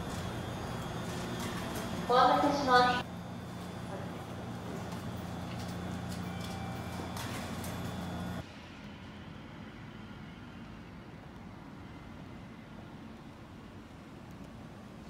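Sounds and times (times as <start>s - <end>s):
low concourse hum: 0.0s - 15.0s
outdoor hum: 0.0s - 15.0s.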